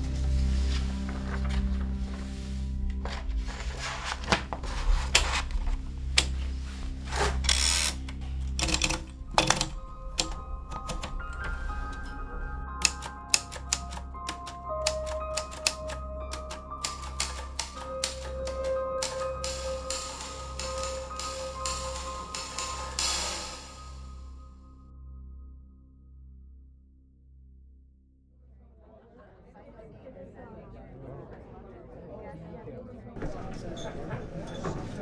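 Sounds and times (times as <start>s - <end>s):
background music with low drone: 0.0s - 29.9s
typewriter keys clacking: 7.4s - 11.5s, 12.8s - 23.9s.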